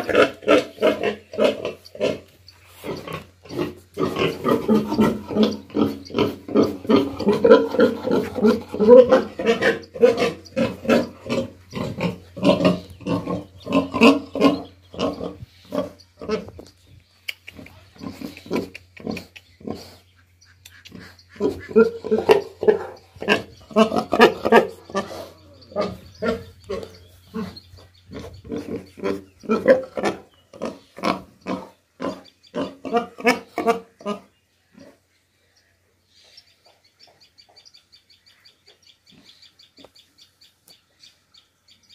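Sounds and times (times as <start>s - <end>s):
pig grunting: 0.0s - 16.6s, 17.5s - 20.0s, 20.8s - 35.0s.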